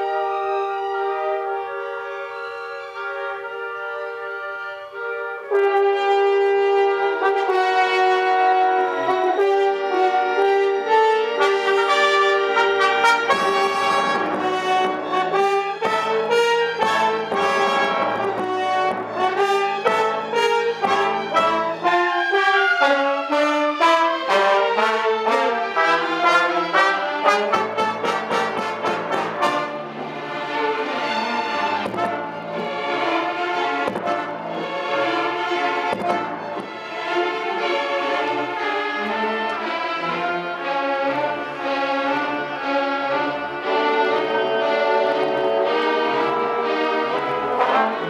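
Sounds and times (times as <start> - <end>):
brass section playing: 0.0 - 48.0
strings playing: 0.0 - 48.0.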